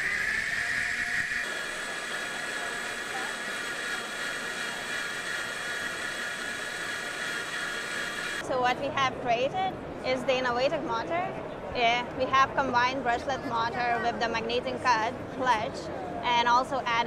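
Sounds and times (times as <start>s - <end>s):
hiss: 0.0s - 8.4s
small electric motor whining: 0.0s - 8.4s.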